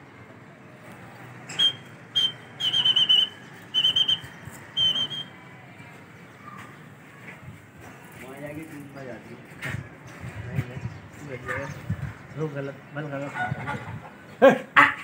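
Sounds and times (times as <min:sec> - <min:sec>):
shrill whistle blasts: 0:01.5 - 0:05.4.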